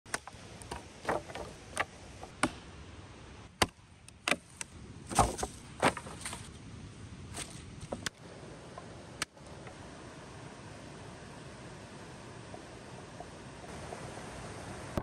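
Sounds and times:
dead branches snapping: 3.6 - 6.6
dry leaves rustling: 4.4 - 8.1.

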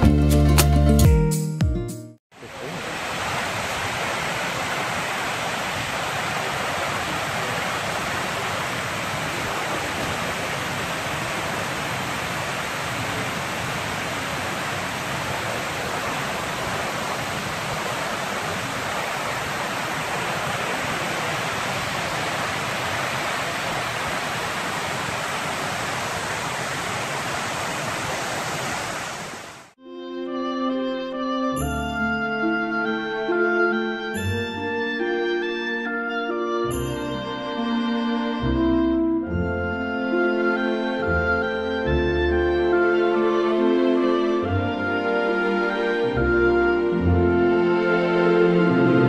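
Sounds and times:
water rushing over a weir: 2.4 - 29.8.

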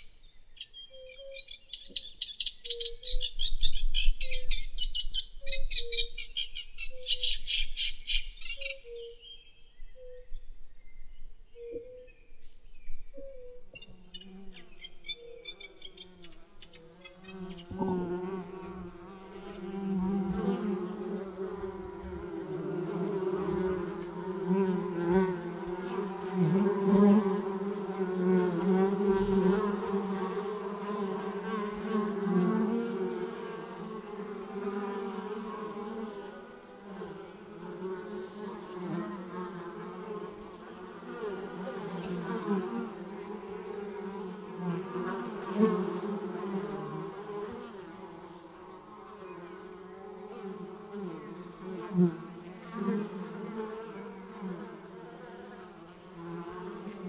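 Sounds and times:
bees buzzing: 14.0 - 57.0.

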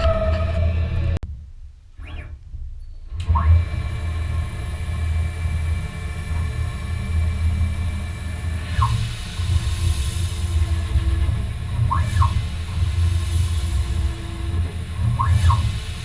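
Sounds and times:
axis drive whine: 2.0 - 16.0
lathe spindle humming: 3.2 - 16.0.

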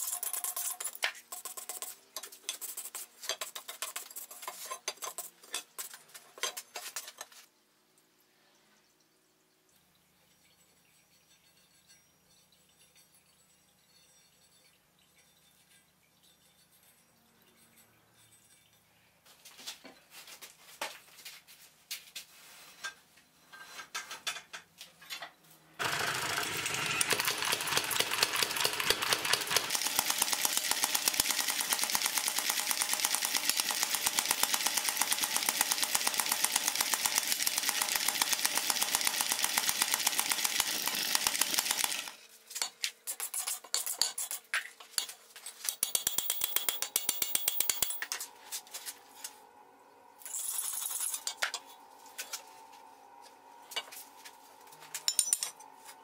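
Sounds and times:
hand hammer on anvil: 42.6 - 48.2, 55.0 - 55.6.

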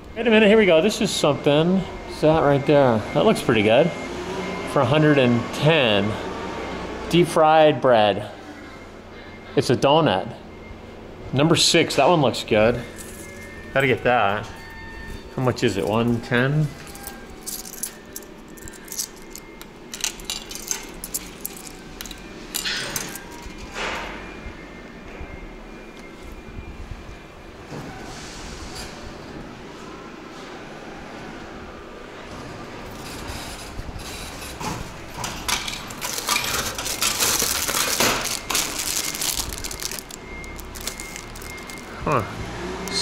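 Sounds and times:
coins clinking in hand: 16.8 - 23.7, 35.5 - 42.0
coins rattling: 16.8 - 23.8, 35.3 - 41.9
coins dropped into coin slot: 16.9 - 24.0, 35.2 - 41.9
plastic wrapper crinkling: 35.9 - 42.0.

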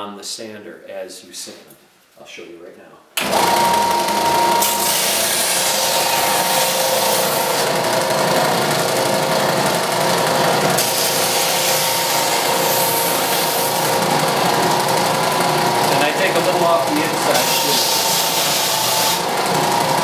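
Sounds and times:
power sander whining: 3.2 - 20.0
bamboo strip being sanded: 4.6 - 7.7, 10.8 - 14.0, 16.6 - 19.3.

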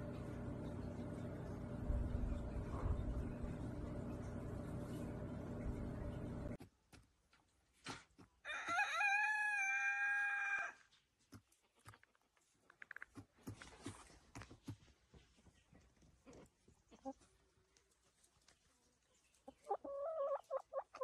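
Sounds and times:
rooster crowing: 8.4 - 10.8.

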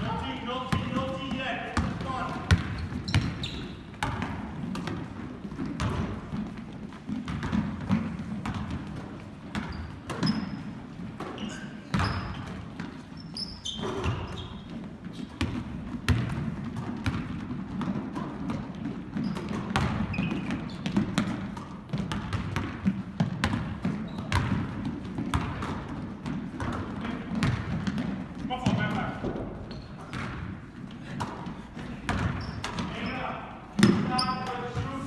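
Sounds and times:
basketballs bouncing on hardwood: 0.0 - 35.0
sneaker squeaks: 0.1 - 6.4, 9.4 - 16.3, 17.0 - 21.8, 23.6 - 25.7, 28.6 - 35.0.

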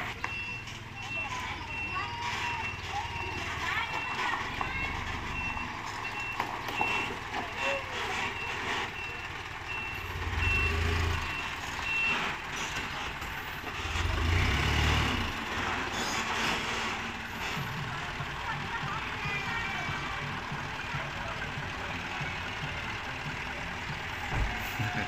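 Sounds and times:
reversing alarm beeping: 0.0 - 12.3
diesel engine running: 0.0 - 25.0.

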